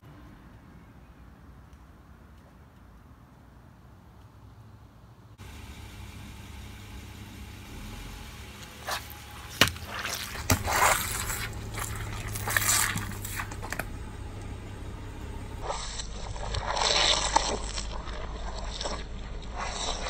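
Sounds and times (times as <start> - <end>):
car engine humming: 5.4 - 20.0
water squirting and splashing: 7.9 - 13.9, 15.6 - 20.0.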